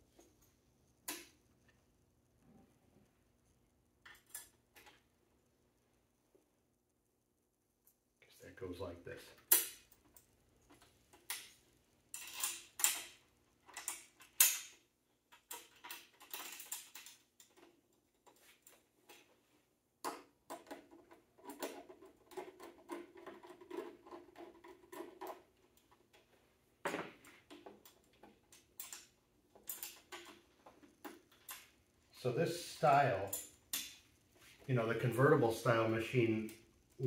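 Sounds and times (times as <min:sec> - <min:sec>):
metal parts clicking and knocking: 0:09.4 - 0:19.3, 0:20.0 - 0:26.2, 0:27.1 - 0:31.8.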